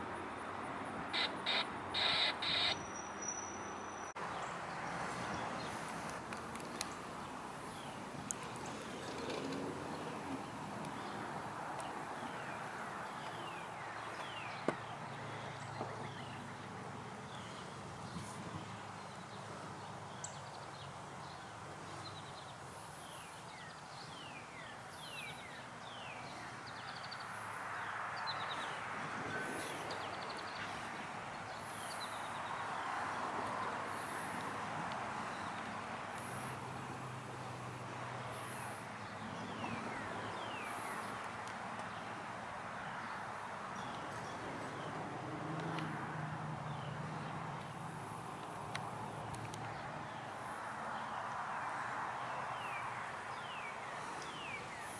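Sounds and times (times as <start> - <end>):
distant vehicle noise: 0.0 - 54.9
birds whistling: 1.2 - 4.1.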